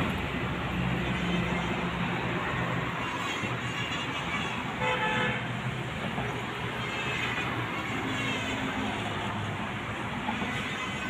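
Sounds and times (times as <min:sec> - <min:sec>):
road traffic noise: 0:00.0 - 0:11.0
vehicle horn toot: 0:03.0 - 0:05.5.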